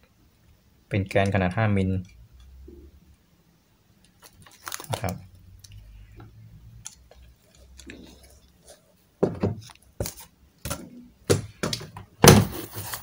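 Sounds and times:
unboxing handling noise: 4.0s - 8.9s, 11.7s - 13.0s.

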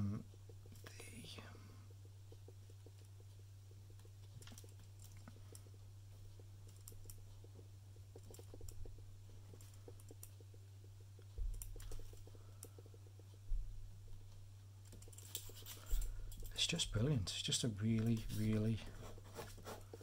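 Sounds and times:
pen scratching on paper: 18.1s - 20.0s.

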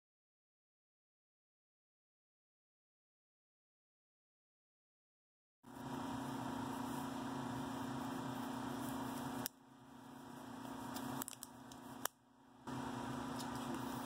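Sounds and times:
electric motor hum: 5.7s - 14.0s
rubber glove rustling: 6.6s - 12.0s.

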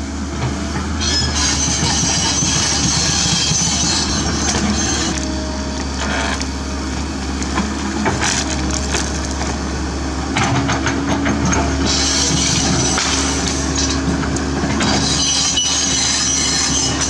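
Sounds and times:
excavator diesel engine under load: 0.0s - 17.0s
roots cracking and splintering: 6.0s - 9.6s.

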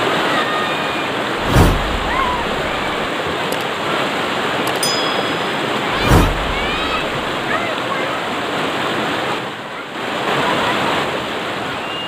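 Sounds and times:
thump: 1.4s - 3.1s, 5.9s - 7.4s.

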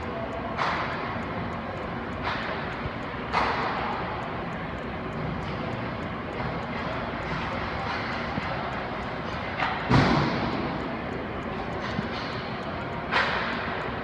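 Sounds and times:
steady mechanical drone: 0.0s - 14.0s.

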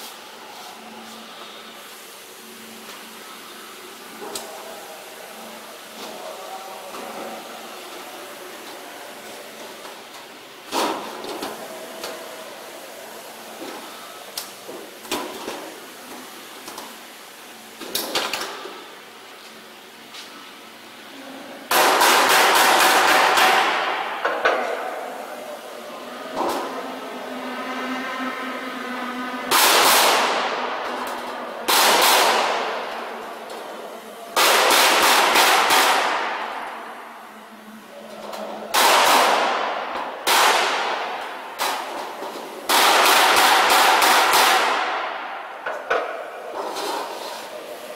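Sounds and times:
steady workshop hum: 0.0s - 47.9s
low machine hum: 23.0s - 31.7s.

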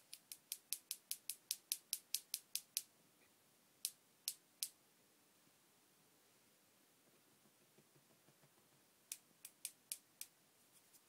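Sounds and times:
sharp high clicks: 0.0s - 2.9s, 3.8s - 4.8s, 9.1s - 10.4s.

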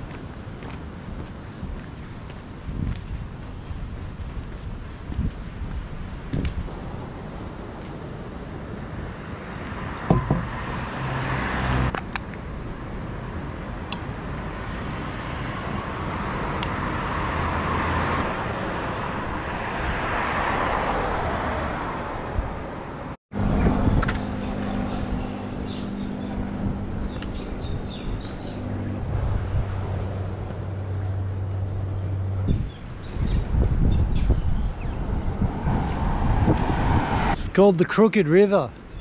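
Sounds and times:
steady low hum: 0.0s - 17.5s
cars passing: 2.3s - 38.9s.

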